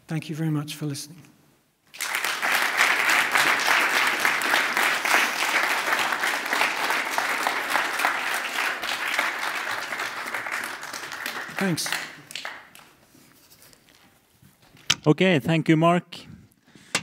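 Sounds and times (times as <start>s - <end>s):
audience applauding: 1.9s - 13.0s.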